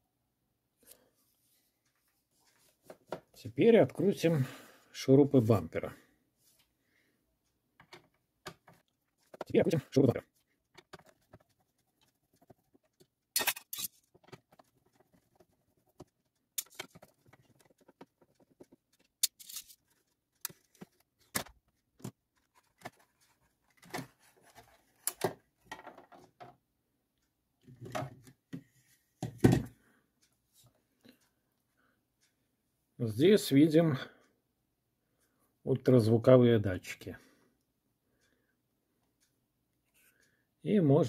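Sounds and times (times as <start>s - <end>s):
screwdriver and plastic clicks: 13.4s - 19.8s.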